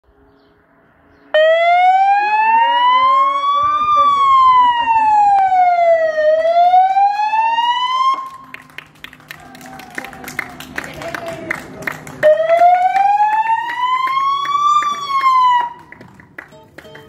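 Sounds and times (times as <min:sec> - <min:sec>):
police siren wailing: 0:01.3 - 0:10.8, 0:12.2 - 0:16.0.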